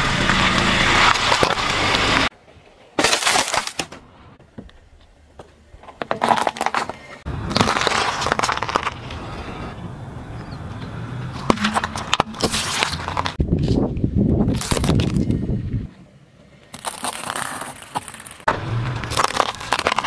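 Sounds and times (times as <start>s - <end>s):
sweets crackling under tyre: 4.4s - 20.0s
tyre rumbling on asphalt: 5.3s - 13.4s, 16.8s - 20.0s
tyre crushing food: 5.8s - 9.0s, 16.8s - 20.0s.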